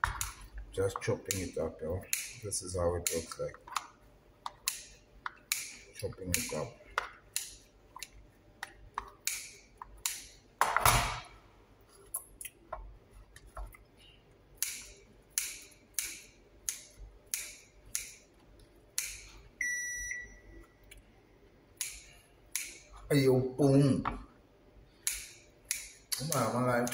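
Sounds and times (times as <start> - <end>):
short electronic beep: 19.6 - 20.6.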